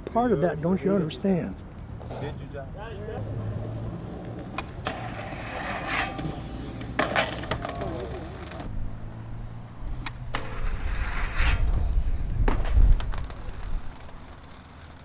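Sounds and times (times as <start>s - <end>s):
skateboard clacking: 4.1s - 8.7s, 12.4s - 15.0s.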